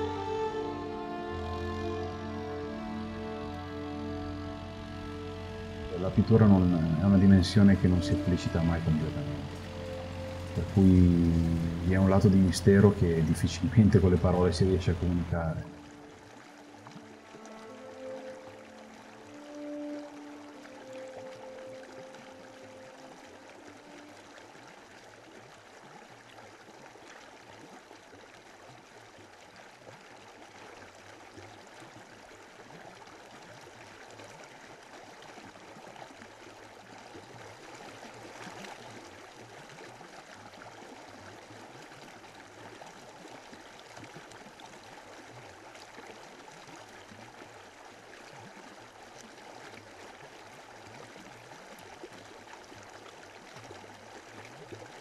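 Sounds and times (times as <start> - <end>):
stream water flowing: 0.0 - 55.0.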